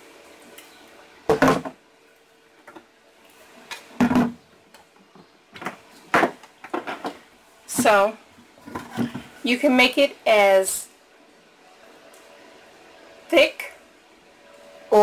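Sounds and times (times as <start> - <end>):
blender knocks and clunks: 1.3 - 1.8, 4.0 - 4.4.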